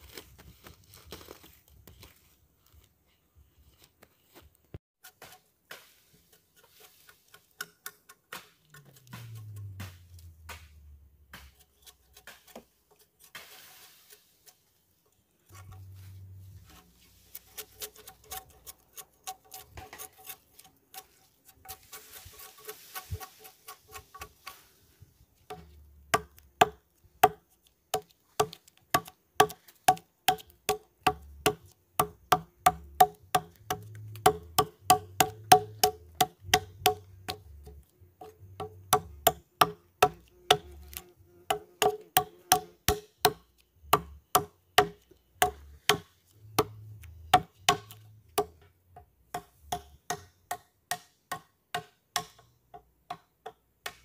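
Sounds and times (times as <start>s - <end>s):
strikes on wood: 28.0s - 48.6s.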